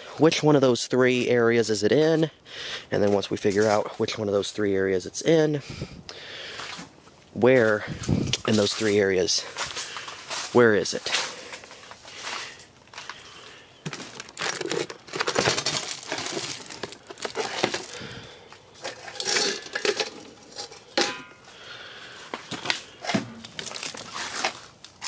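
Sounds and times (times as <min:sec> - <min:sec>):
rummaging through metal tools: 0:13.9 - 0:21.5.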